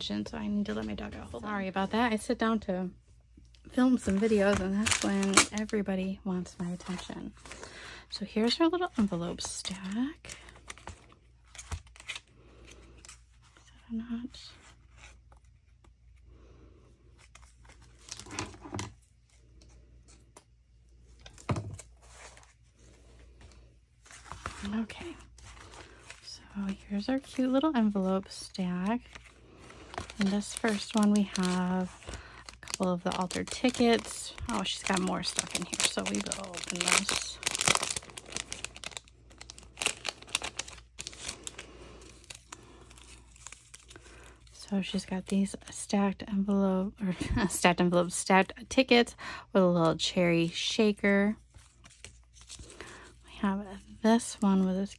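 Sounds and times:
paper and envelopes rustling: 3.7s - 16.2s, 17.1s - 20.5s, 21.3s - 45.8s, 51.3s - 53.2s
cellophane bag crinkling: 3.9s - 5.8s, 24.3s - 45.0s.

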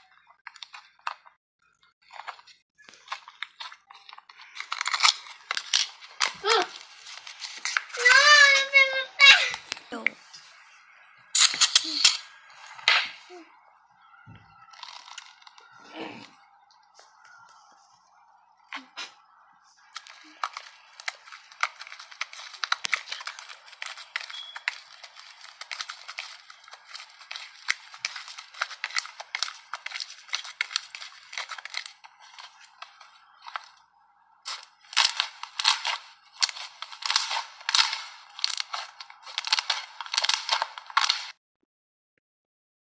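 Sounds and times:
slime crackling and popping: 0.0s - 10.1s, 14.6s - 15.8s, 18.7s - 41.4s.

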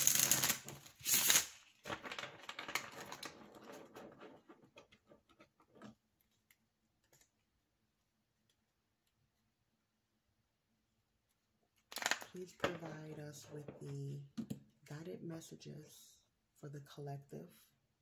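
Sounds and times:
cards riffle-shuffled: 0.0s - 3.3s.

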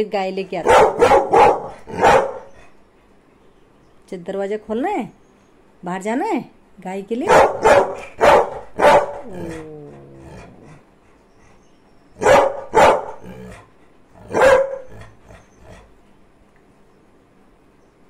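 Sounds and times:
dog barking: 0.6s - 2.6s, 7.3s - 9.3s, 12.2s - 13.3s, 14.2s - 15.0s.

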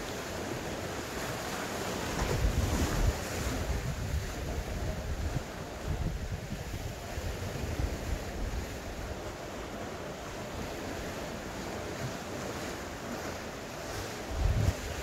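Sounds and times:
waves washing against rocks: 0.0s - 15.0s
wind blowing over microphone: 2.2s - 9.2s, 14.2s - 15.0s.

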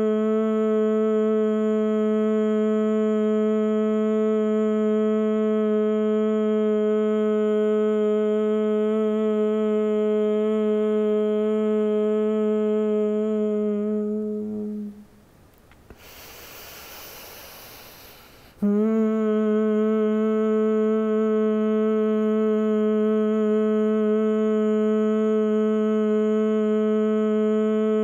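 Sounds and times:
woman humming: 0.0s - 15.1s, 16.0s - 28.0s
slow breath in: 15.9s - 18.6s.

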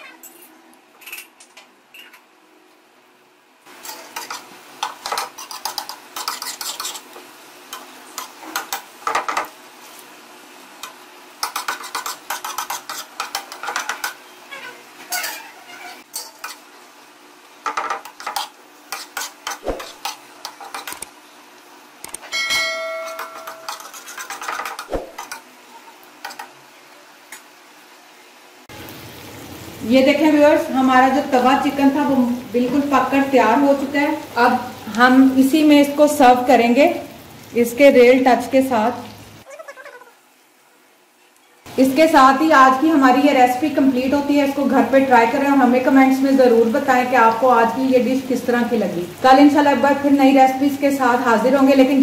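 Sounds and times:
metal spatula scraping griddle pan: 3.8s - 7.1s, 11.4s - 14.2s, 15.0s - 16.6s, 17.7s - 20.9s, 22.8s - 25.9s
short metallic ringing tone: 22.3s - 23.7s.

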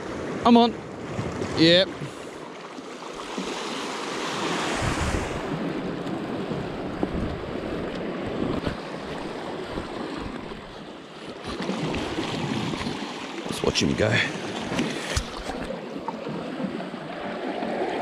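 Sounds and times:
sea waves washing over rocks: 0.0s - 18.0s
wind buffeting microphone: 4.7s - 10.8s.

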